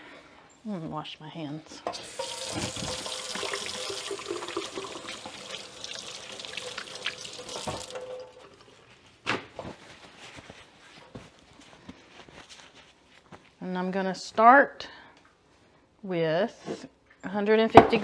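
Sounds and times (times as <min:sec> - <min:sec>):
tap water splashing on hands: 0:02.2 - 0:08.6.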